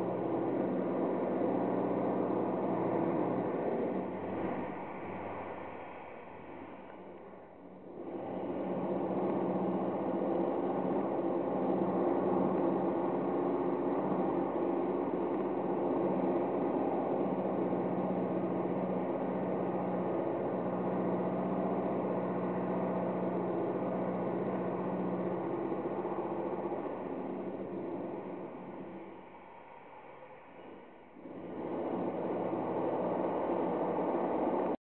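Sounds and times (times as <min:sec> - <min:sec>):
boiler machinery humming: 0:00.0 - 0:29.5, 0:30.7 - 0:34.8.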